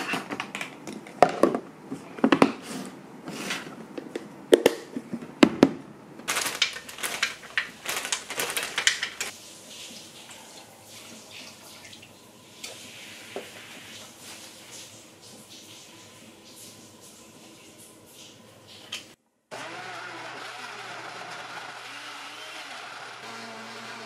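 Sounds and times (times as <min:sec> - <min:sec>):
frozen fruit clattering into blender jar: 0:06.3 - 0:09.3.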